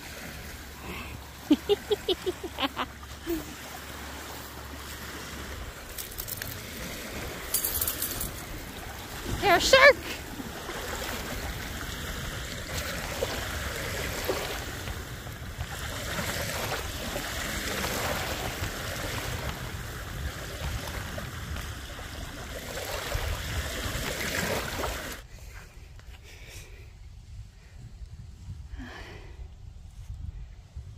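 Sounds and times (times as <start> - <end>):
small waves lapping: 0.0 - 25.3
wind on microphone: 8.2 - 25.6, 26.4 - 30.9.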